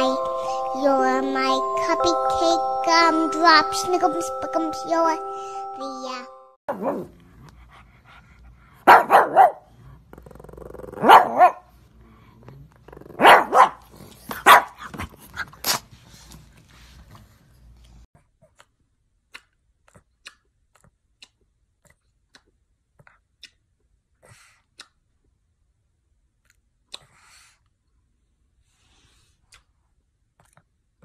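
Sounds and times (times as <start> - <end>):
dog barking: 8.8 - 9.7, 11.0 - 11.7, 13.2 - 13.8, 14.4 - 14.8.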